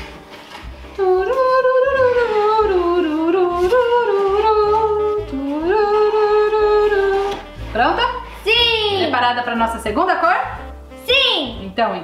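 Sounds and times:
person humming: 1.0 - 7.5.

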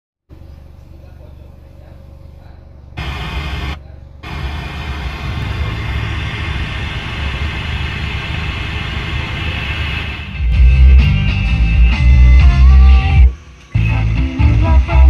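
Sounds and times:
radio static hiss: 3.0 - 10.4.

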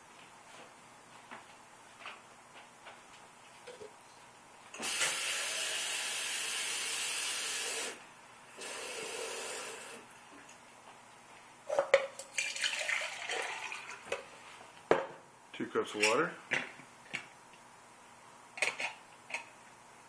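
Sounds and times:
kitchen tap running water: 12.3 - 14.1.

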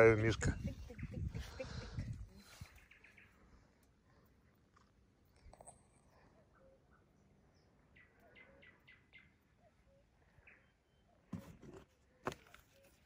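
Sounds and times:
bird chirping: 0.3 - 13.0.

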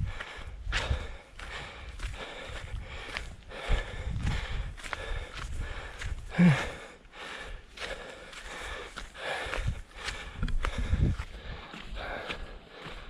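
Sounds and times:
footsteps on dry ground: 0.0 - 13.0
heavy breathing: 0.0 - 13.0
person grunting: 6.3 - 6.8.

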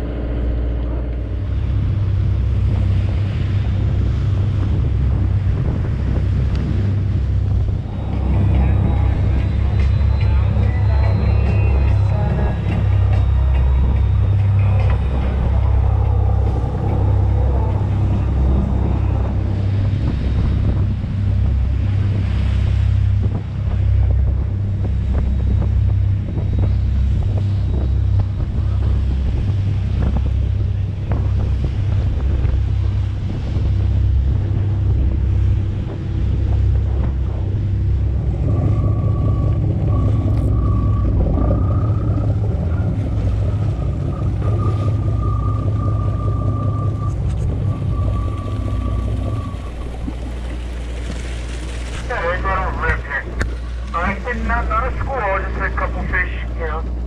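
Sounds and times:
boat engine low rumble: 0.0 - 57.0
thin steady whine: 0.0 - 57.0
wind buffeting microphone: 0.0 - 57.0.

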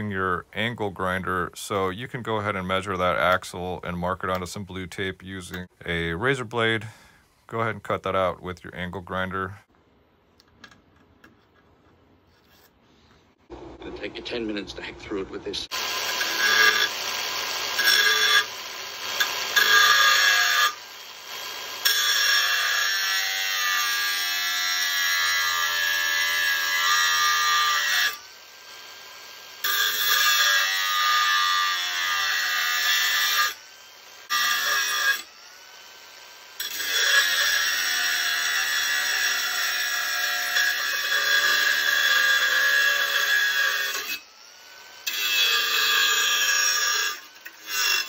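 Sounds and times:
angle grinder cutting metal: 15.7 - 48.0.

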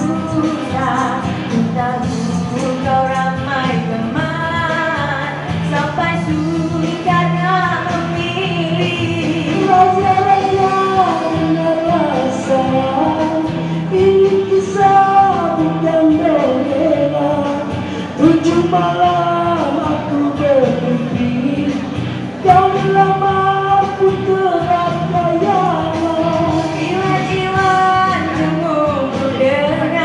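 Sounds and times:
amplified backing music: 0.0 - 30.0
woman singing: 0.0 - 30.0
man singing: 8.6 - 30.0.

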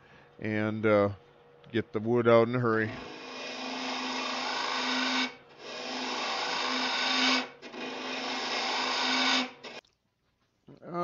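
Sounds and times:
lathe cutter shaving wood: 2.8 - 9.8.

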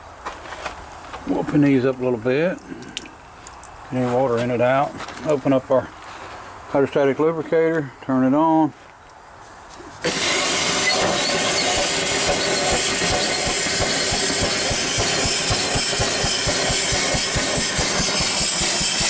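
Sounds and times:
steam hissing: 10.0 - 19.0
steam engine chuffing: 10.1 - 19.0.

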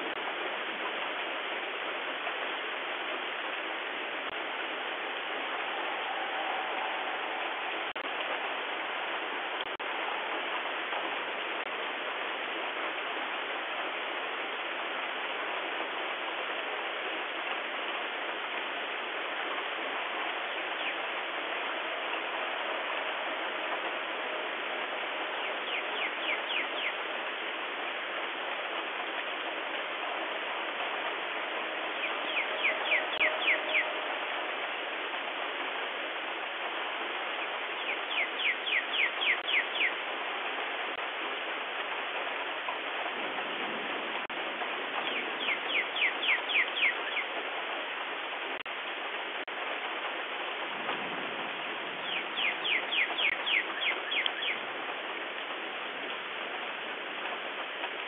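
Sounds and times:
steady rain falling: 0.0 - 58.0
songbird whistled notes: 25.7 - 27.0, 32.0 - 34.0, 37.8 - 40.0, 45.1 - 47.3, 52.0 - 54.6.

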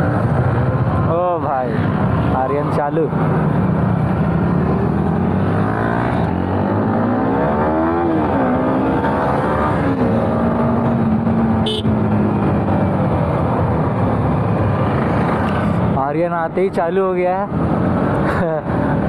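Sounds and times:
motorcycle engine: 3.2 - 15.9.

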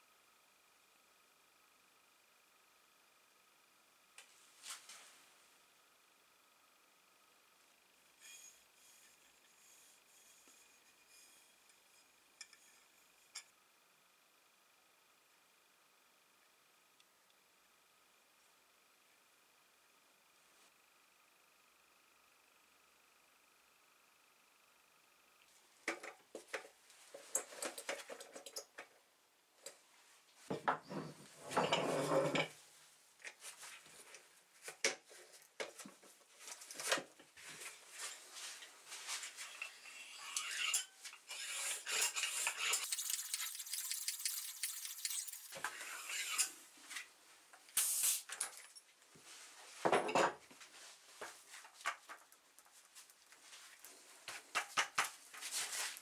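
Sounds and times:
air hissing from hand pump: 47.8 - 48.3.

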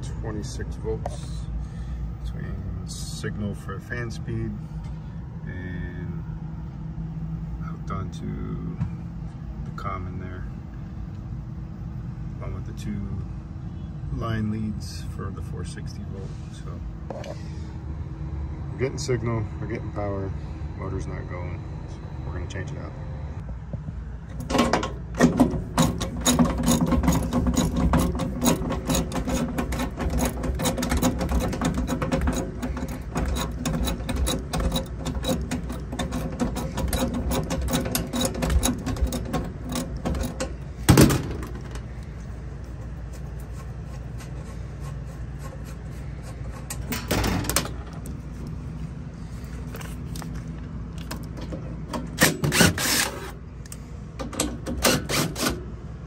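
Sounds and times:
fast ratchet clicking: 25.6 - 40.5
cordless drill running: 52.6 - 53.2.

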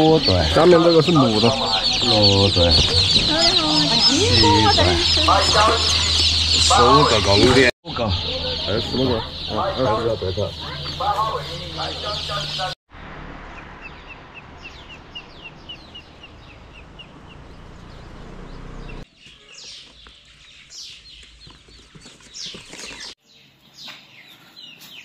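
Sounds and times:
chicks peeping: 0.0 - 12.8, 13.6 - 23.2.

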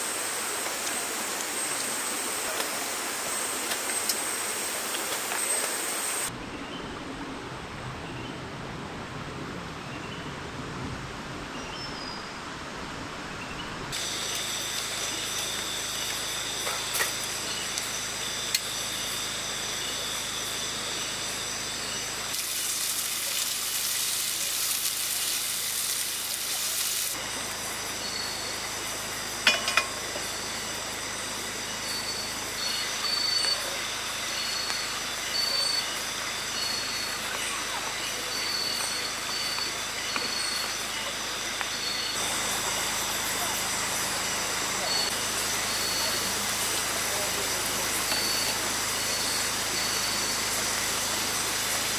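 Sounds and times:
gas stove hissing: 0.0 - 6.3, 14.0 - 51.9
night insects trilling: 0.0 - 6.3, 13.9 - 51.9
rainforest ambience: 0.0 - 51.9
cookware clinking: 29.4 - 30.0.

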